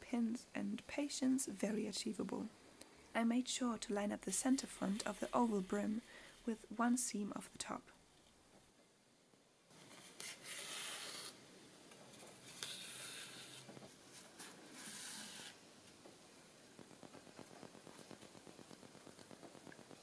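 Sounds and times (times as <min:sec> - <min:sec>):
fabric rubbing: 0:04.5 - 0:06.6, 0:12.1 - 0:15.6.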